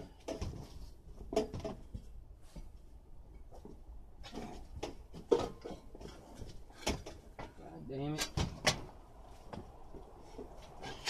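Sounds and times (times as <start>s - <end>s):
sharp knocks and scrapes: 3.4s - 11.0s.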